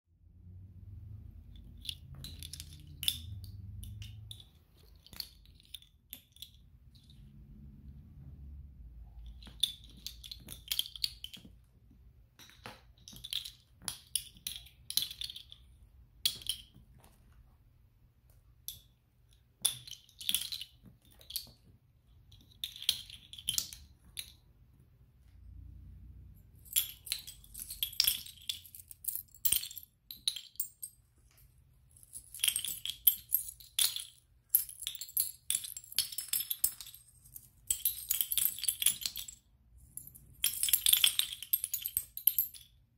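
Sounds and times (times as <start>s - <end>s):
coins clinking: 26.5s - 42.7s.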